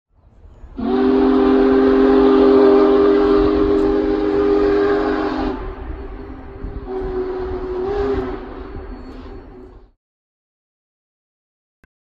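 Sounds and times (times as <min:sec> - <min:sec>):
steam locomotive whistle: 0:00.7 - 0:09.9.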